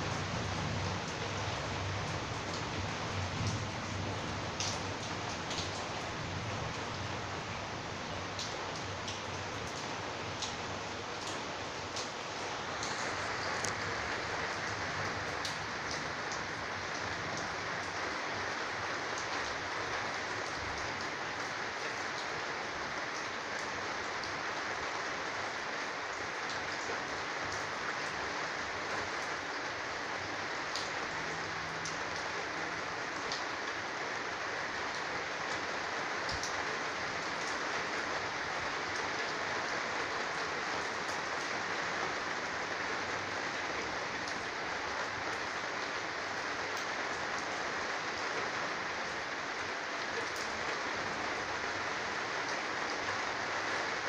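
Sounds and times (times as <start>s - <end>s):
heavy rain hissing: 0.0s - 54.0s
raindrop ticks: 3.4s - 3.7s, 4.5s - 6.1s, 8.2s - 18.0s, 34.9s - 36.6s, 46.8s - 47.5s.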